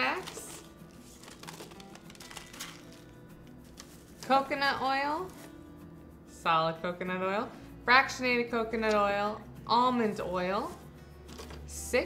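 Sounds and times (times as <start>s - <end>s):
paper pouch rustling: 0.0s - 4.4s, 5.2s - 5.6s
quiet background music: 0.0s - 12.0s.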